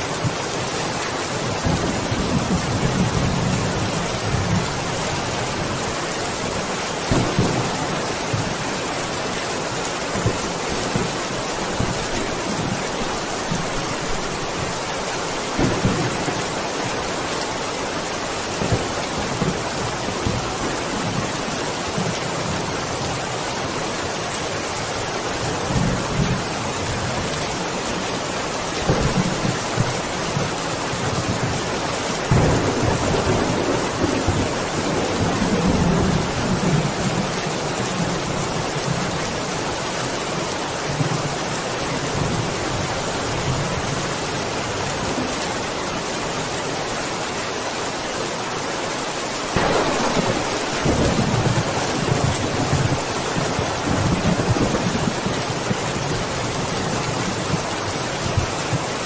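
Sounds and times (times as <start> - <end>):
heavy rain: 0.0 - 59.0
low rolls of thunder: 15.5 - 17.1, 32.3 - 37.3, 49.6 - 56.3.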